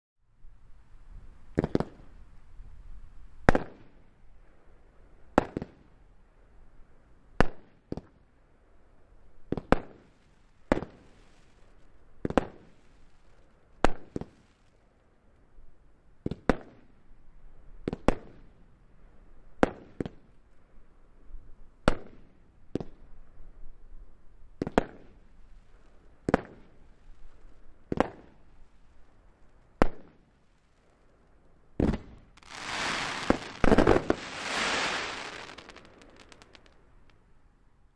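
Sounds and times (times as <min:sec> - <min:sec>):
firework shots banging: 0:32.4 - 0:36.7.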